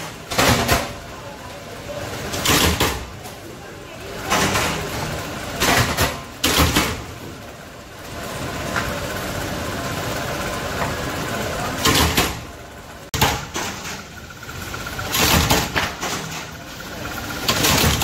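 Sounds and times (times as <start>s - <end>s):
power press running: 4.2s - 18.0s.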